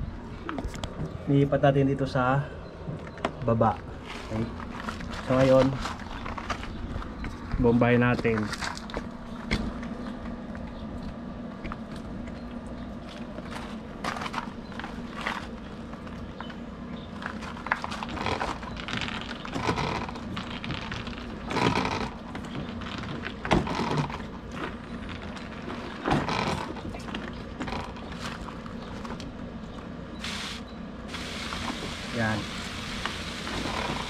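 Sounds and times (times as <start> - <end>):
manual sprayer pump strokes: 30.2 - 34.0.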